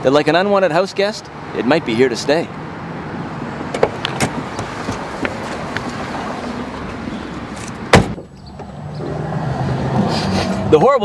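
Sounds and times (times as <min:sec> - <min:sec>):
vehicle rumble: 0:01.0 - 0:11.0
car door shutting: 0:03.7 - 0:05.4, 0:07.6 - 0:09.2.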